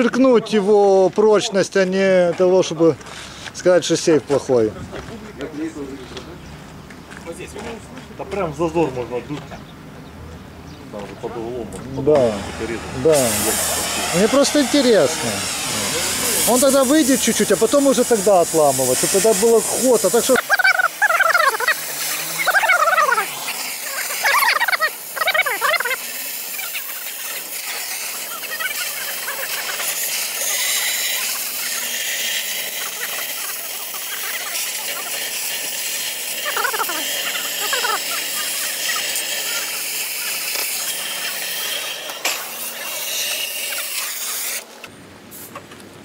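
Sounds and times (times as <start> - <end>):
cutting torch hissing: 11.6 - 44.8
high chirping: 19.2 - 31.8, 36.4 - 39.1.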